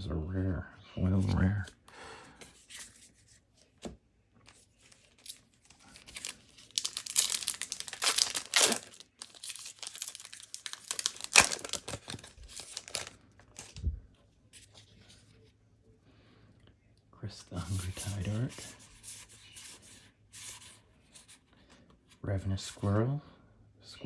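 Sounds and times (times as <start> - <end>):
foil wrapper tearing and crinkling: 5.0 - 13.8.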